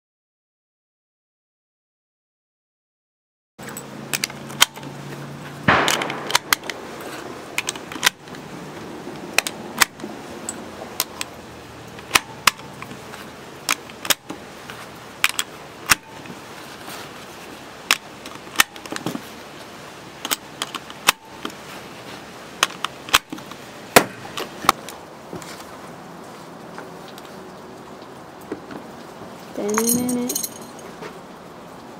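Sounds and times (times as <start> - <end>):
low background noise: 3.6 - 31.9
hard plastic and metal clicking: 5.7 - 6.8
clattering rustle: 29.7 - 31.2.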